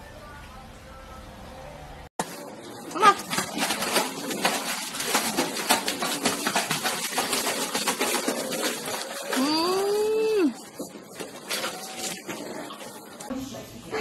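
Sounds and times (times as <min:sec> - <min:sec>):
water splashing and slapping: 0:02.2 - 0:13.3.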